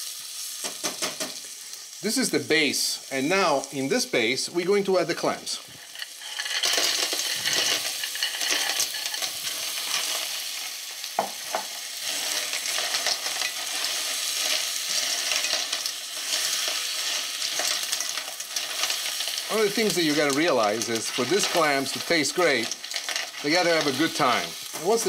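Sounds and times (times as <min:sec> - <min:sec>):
clams sizzling in hot oil: 0:00.0 - 0:25.0
shells clicking and scraping on pan: 0:05.7 - 0:25.0.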